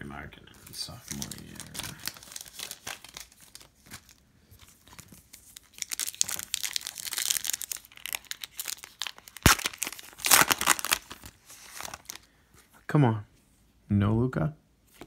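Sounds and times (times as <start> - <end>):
foil wrapper crinkling and tearing: 0.8 - 12.3.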